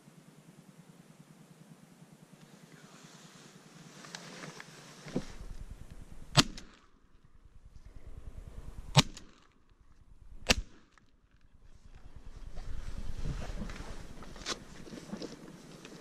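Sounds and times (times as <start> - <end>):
shotgun shots: 6.3 - 6.8, 8.9 - 9.5, 10.4 - 10.9.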